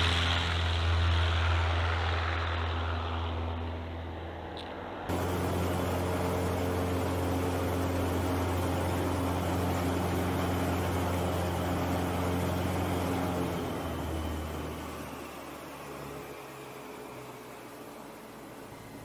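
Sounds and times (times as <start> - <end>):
airplane engine and propeller: 0.0 - 19.0.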